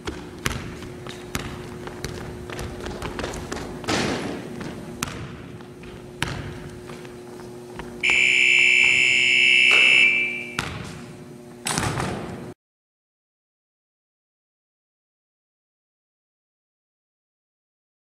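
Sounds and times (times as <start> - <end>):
basketball thudding on wooden floor: 0.0 - 7.0, 10.6 - 11.0
electronic timer buzzer: 8.0 - 10.7.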